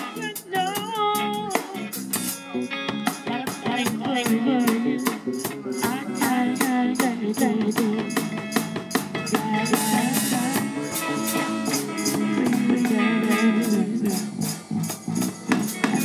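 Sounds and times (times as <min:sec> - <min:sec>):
bass guitar: 0:00.0 - 0:16.0
drum kit beat: 0:00.0 - 0:16.0
electric guitar bending notes: 0:00.0 - 0:16.0.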